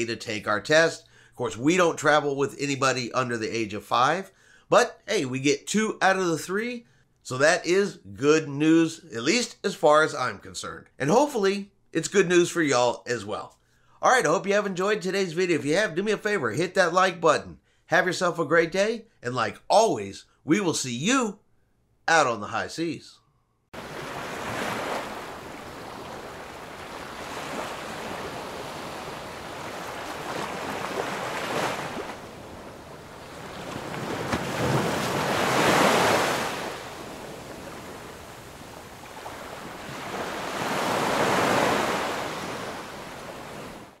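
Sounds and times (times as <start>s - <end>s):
waves washing onto beach: 23.8s - 44.0s.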